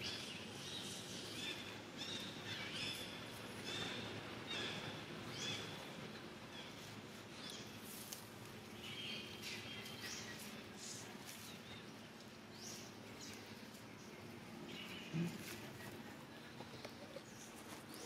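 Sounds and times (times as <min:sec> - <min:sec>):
dry leaves crackling: 0:06.4 - 0:16.4.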